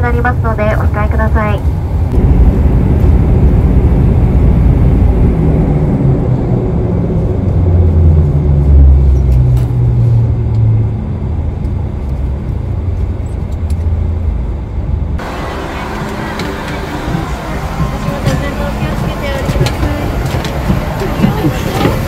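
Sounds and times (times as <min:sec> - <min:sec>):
aircraft cabin engine rumble: 0:00.0 - 0:22.0
propeller drone: 0:00.0 - 0:22.0.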